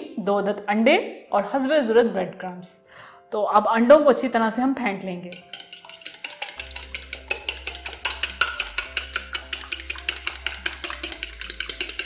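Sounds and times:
soft background music: 0.0 - 12.0
fork beating eggs in a bowl: 5.3 - 12.0.

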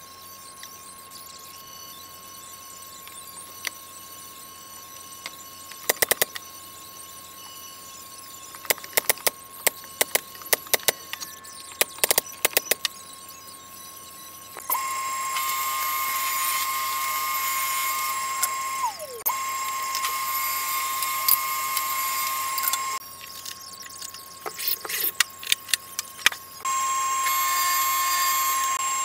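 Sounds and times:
table saw running: 14.3 - 23.0, 26.6 - 29.0.

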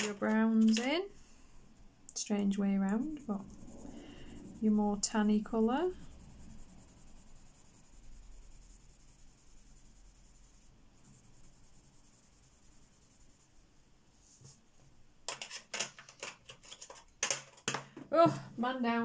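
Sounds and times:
pencil scratching on paper: 3.0 - 14.6
sharp clicks and knocks: 15.3 - 18.1.

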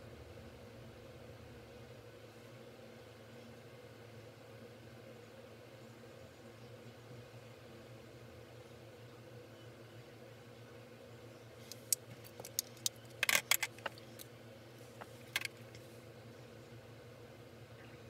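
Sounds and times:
faint steady hum: 0.0 - 18.0
makeup tools clicking and clattering: 11.7 - 14.2, 15.0 - 15.8.

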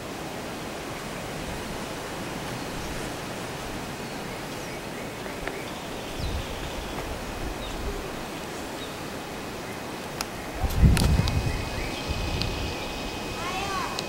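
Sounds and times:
wind buffeting microphone: 1.2 - 14.0
wind hissing: 5.7 - 14.0.

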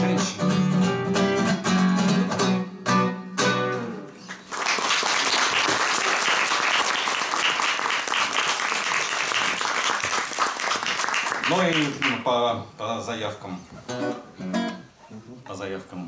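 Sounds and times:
acoustic guitar strummed chords: 0.0 - 4.2
audience applause: 4.3 - 12.2.

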